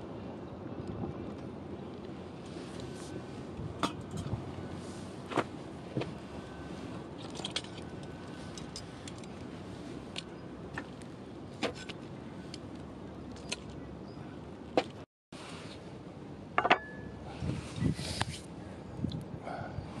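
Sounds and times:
embers crackling and hissing: 17.3 - 18.8.

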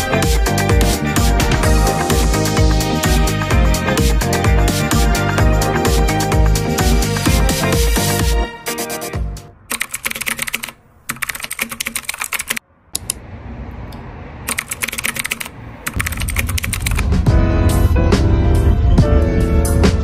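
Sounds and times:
computer keyboard typing: 9.7 - 12.6, 14.5 - 17.0.

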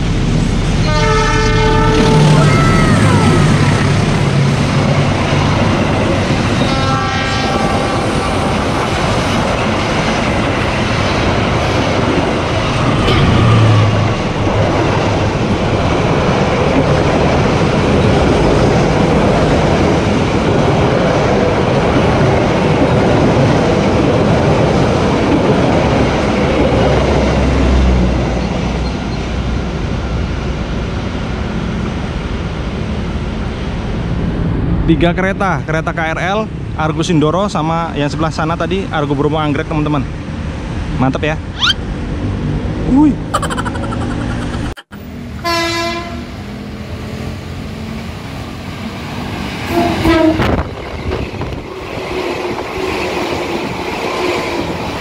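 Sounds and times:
train coaches rumbling and clattering: 0.0 - 55.0
train horn: 0.8 - 2.5, 6.6 - 8.5, 45.4 - 46.4, 49.7 - 50.6.

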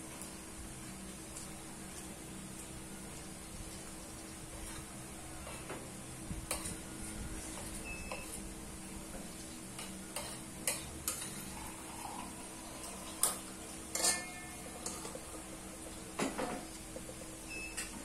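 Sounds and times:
spoon clinking on plate: 13.9 - 15.2.

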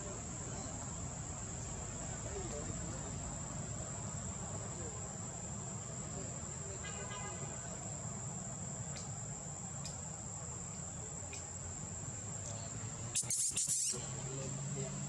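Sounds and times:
insects droning: 0.0 - 15.0
faint ticks: 9.8 - 11.6.

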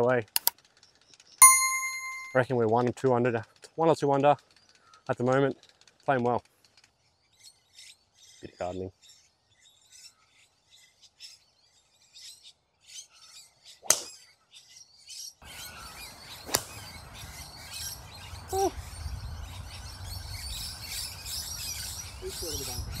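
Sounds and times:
birds chirping: 7.4 - 23.0.

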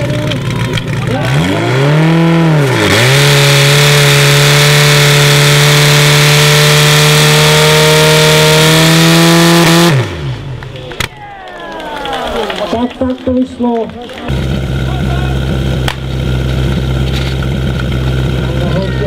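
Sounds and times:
fire pump engine revving: 0.0 - 10.8, 14.0 - 19.0.

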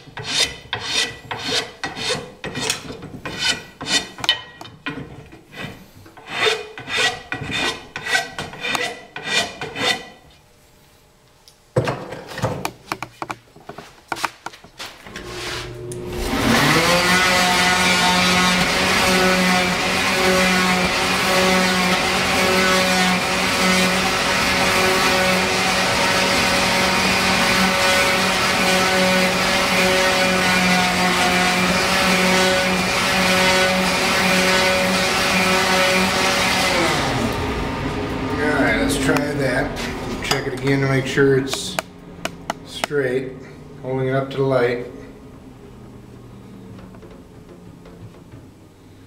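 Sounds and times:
woodworking machine running: 15.1 - 49.0.

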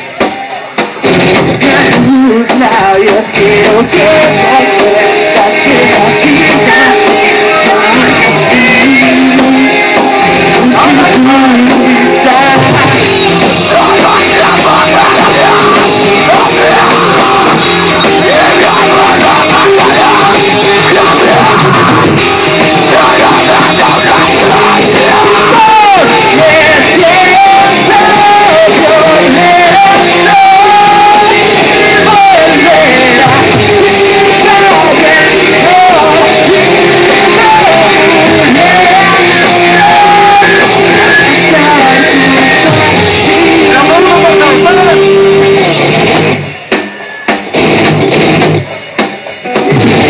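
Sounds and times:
live rock band playing: 0.0 - 50.0.

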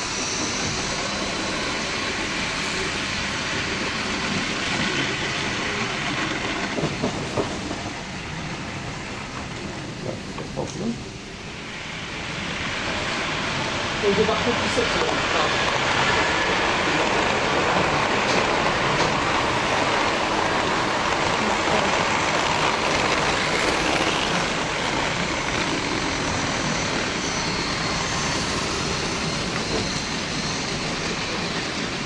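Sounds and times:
model trains rumbling on track: 12.3 - 32.0.

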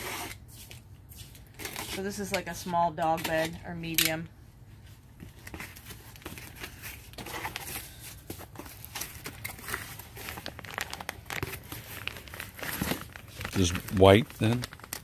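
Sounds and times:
packaging crinkling and rustling: 5.2 - 15.0.

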